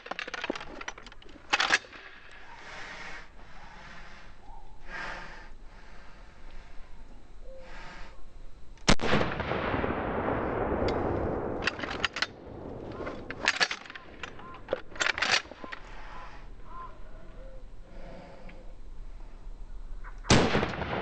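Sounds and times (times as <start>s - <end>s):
shotgun shot: 20.3s - 21.0s.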